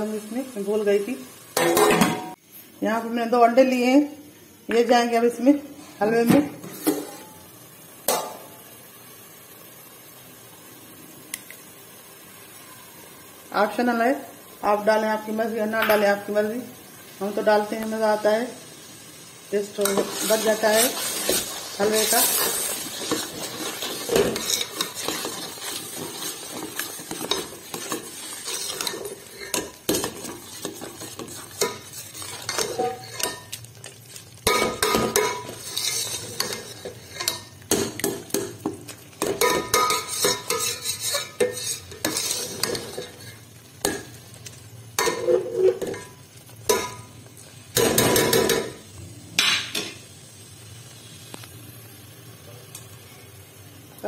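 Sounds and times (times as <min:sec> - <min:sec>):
metal spoon scraping a pot: 0:19.8 - 0:33.6, 0:34.5 - 0:37.5, 0:39.2 - 0:43.4.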